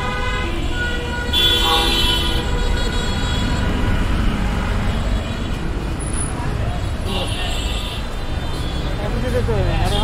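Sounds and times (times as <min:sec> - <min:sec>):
vehicle horn honking: 0:00.0 - 0:03.7
road traffic rumbling: 0:00.0 - 0:10.0.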